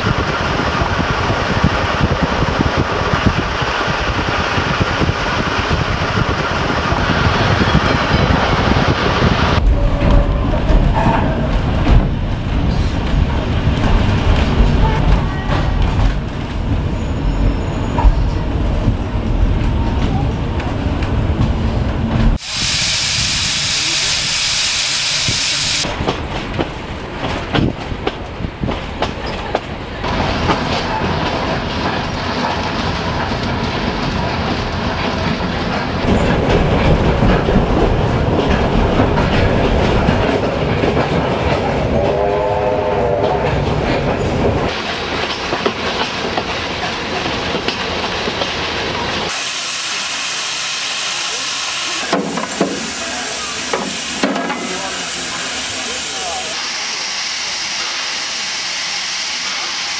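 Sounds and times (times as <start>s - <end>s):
train wheels clattering on rails: 0.0s - 22.4s, 25.8s - 49.4s, 52.0s - 55.0s
steam hissing: 22.4s - 25.8s, 49.2s - 59.9s.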